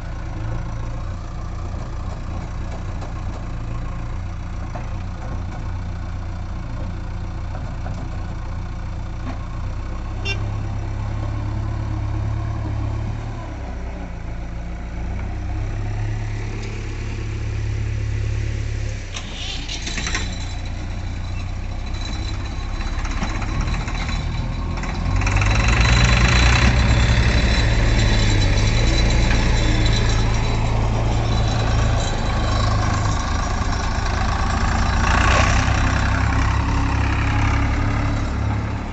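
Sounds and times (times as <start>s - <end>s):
diesel engines droning: 0.0s - 38.9s.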